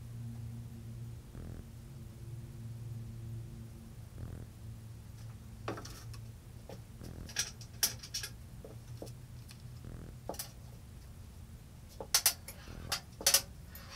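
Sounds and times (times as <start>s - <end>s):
low steady hum: 0.0s - 13.9s
small hardware clicking on metal: 12.0s - 13.5s.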